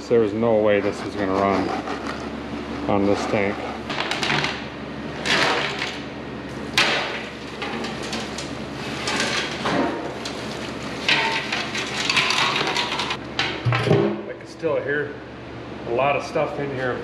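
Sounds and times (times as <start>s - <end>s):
nuts rattling inside metal tank: 6.7s - 14.0s.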